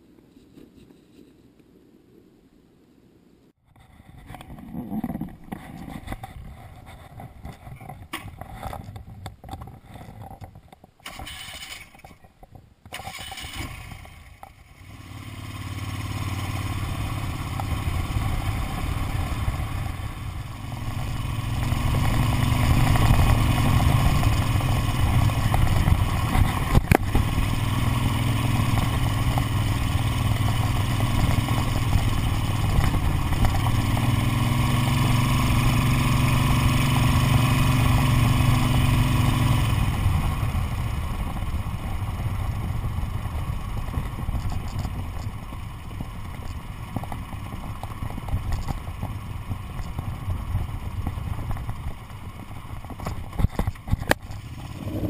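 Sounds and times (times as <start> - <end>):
motorcycle engine running: 13.1 - 55.0.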